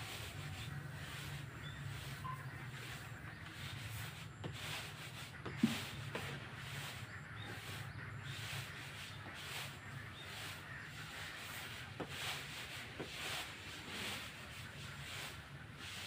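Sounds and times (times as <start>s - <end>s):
rice grains hissing onto tarp: 7.6s - 16.0s.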